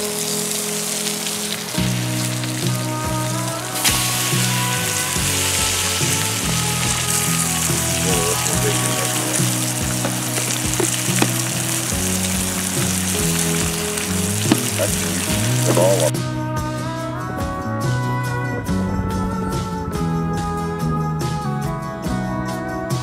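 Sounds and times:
bacon sizzling in a frying pan: 0.0 - 16.1
guitar music: 0.0 - 18.7
fat popping: 5.3 - 16.1.

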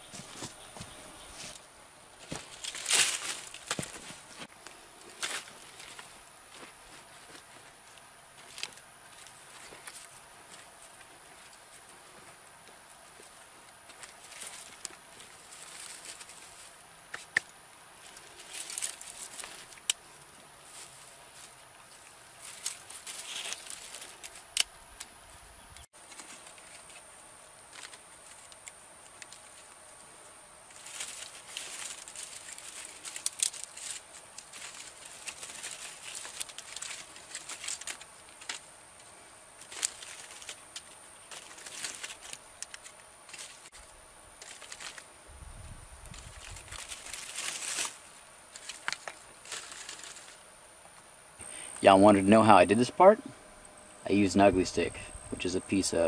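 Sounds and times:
sticks snapping and clattering: 2.3 - 6.1, 13.8 - 20.0, 22.4 - 25.1, 27.7 - 29.8, 30.7 - 45.1, 46.1 - 50.4.

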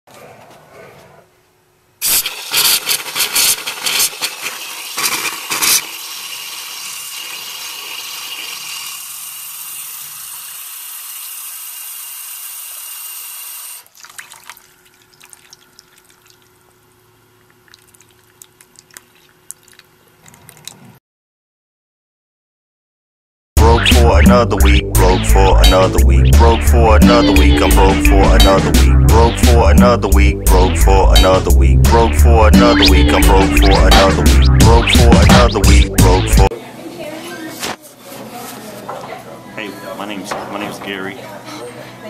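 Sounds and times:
tap water running into sink: 2.8 - 9.3
water drips: 13.9 - 20.8.

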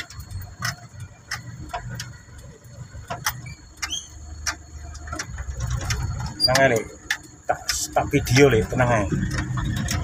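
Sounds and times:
cab clicks and rattles: 0.0 - 10.0
truck engine rumbling: 0.0 - 10.0
brief squeak: 3.4 - 4.2.

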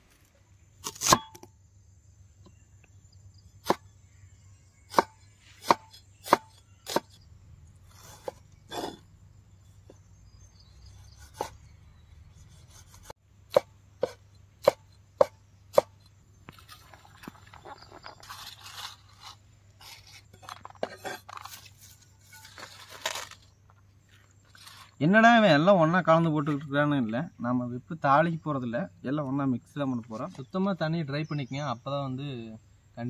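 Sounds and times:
knife chopping on wooden board: 4.9 - 7.2, 11.2 - 11.6, 12.8 - 16.0.

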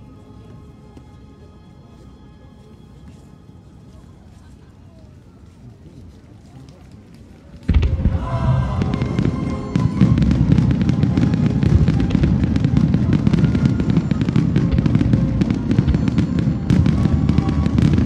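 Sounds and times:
faint music: 0.0 - 18.0
fireworks crackling: 7.6 - 18.0
low booming of fireworks: 7.6 - 18.0.

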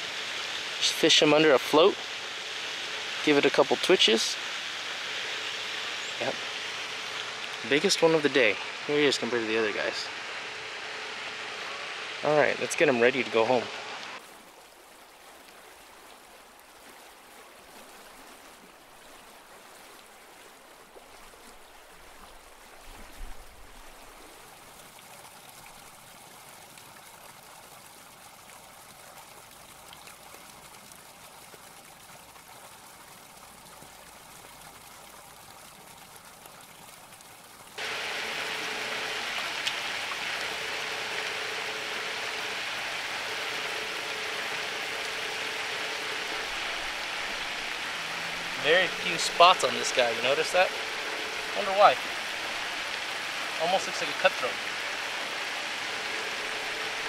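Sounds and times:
faint broken hum: 0.0 - 14.2, 37.8 - 57.0
running water hiss: 0.0 - 57.0.

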